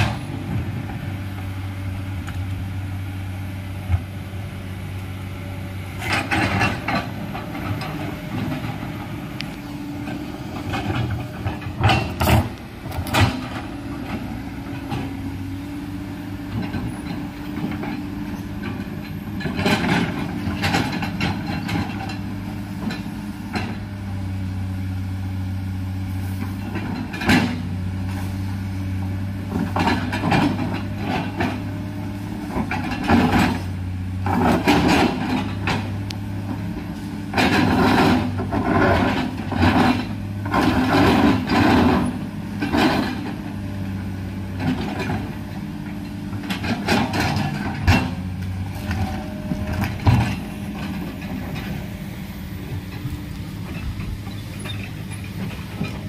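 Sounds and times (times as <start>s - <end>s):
diesel engine running: 0.0s - 56.0s
excavator bucket clanking on rock: 32.5s - 36.0s, 46.4s - 51.9s.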